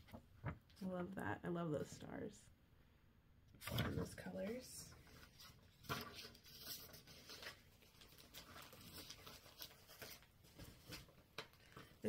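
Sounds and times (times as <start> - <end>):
paper packets in plastic sleeves rustling: 3.7 - 12.0.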